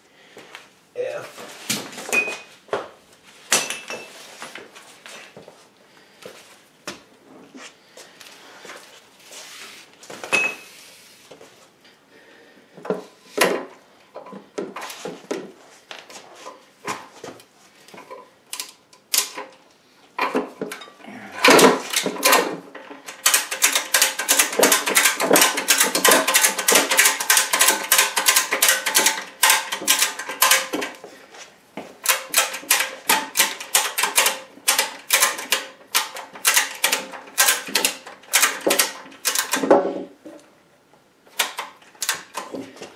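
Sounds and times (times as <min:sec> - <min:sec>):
metal parts knocking: 0:20.2 - 0:31.0, 0:32.0 - 0:40.0.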